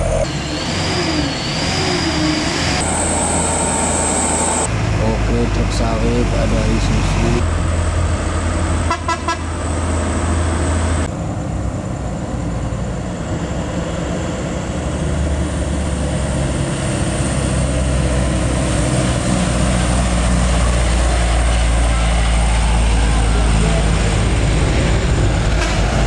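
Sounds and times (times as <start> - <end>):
truck engines rumbling: 0.0 - 26.0
horn tooting: 8.9 - 9.6.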